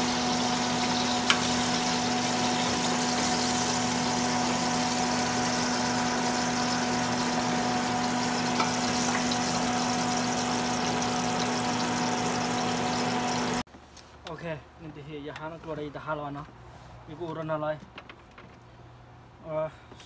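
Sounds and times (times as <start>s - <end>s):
motor humming with whine: 0.0s - 13.6s.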